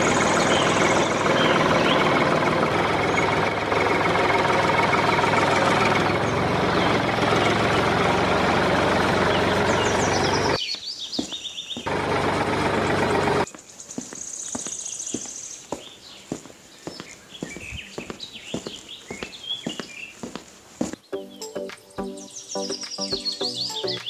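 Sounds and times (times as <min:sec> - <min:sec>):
tractor engine chugging: 0:00.0 - 0:10.6, 0:11.9 - 0:13.5.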